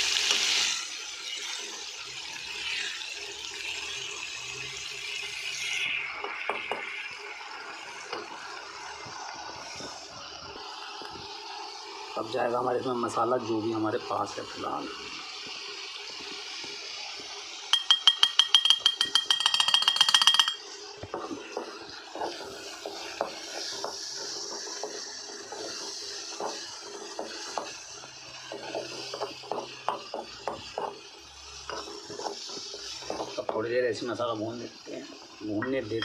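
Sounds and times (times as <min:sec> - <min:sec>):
spices sizzling in oil: 0:00.0 - 0:36.0
ringing metal taps on cookware: 0:17.7 - 0:20.7
spatula scraping and knocking pan: 0:17.7 - 0:33.7.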